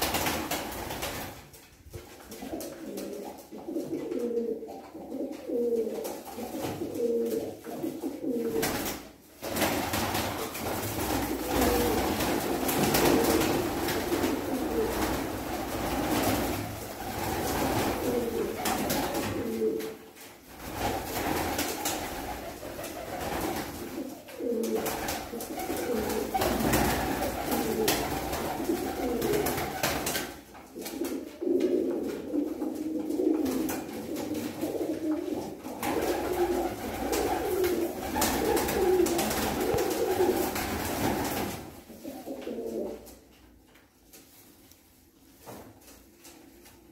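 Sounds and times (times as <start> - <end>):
pigeons cooing: 2.5 - 8.6, 11.4 - 15.5, 17.0 - 20.0, 22.7 - 29.8, 30.9 - 40.6.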